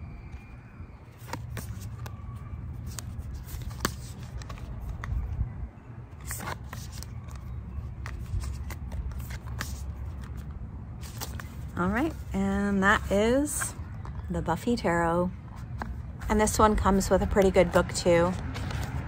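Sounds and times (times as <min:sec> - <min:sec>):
cards flicking and rustling: 0:01.1 - 0:05.4, 0:06.1 - 0:12.3, 0:17.3 - 0:19.0.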